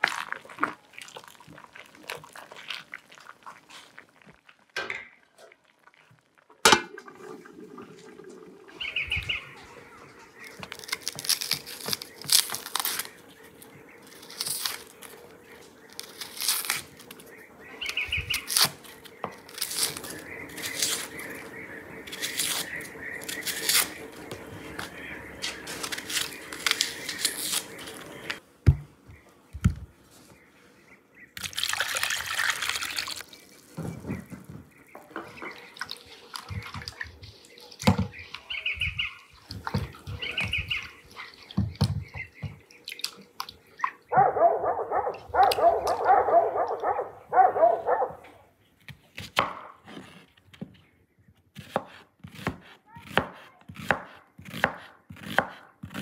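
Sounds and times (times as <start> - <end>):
water splashing in a bowl: 0.0 - 11.4, 31.4 - 38.5
knife scraping onions: 22.1 - 24.0, 25.4 - 28.4, 51.6 - 56.0.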